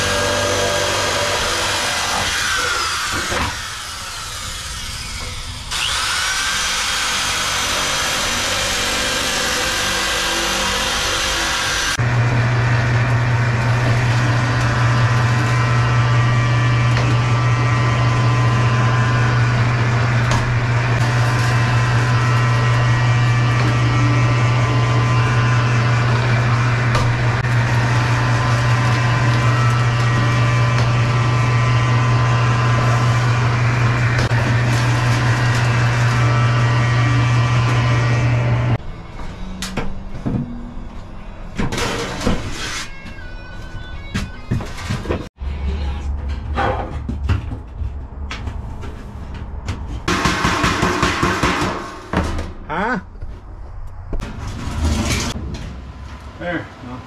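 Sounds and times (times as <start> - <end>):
electric shear cutting sheet metal: 0.0 - 38.8, 41.7 - 43.0
forming machine motor humming: 10.6 - 38.8.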